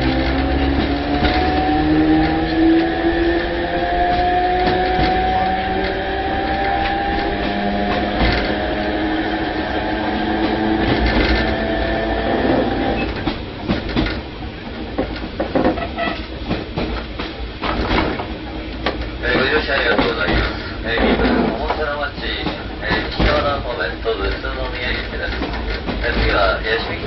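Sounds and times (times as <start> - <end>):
irregular clatter and knocks: 0.0 - 2.6, 4.0 - 6.0, 6.6 - 8.8, 10.3 - 11.7, 13.0 - 27.0
train motor whine: 0.0 - 13.9
train rumble and rail clatter: 0.0 - 27.0.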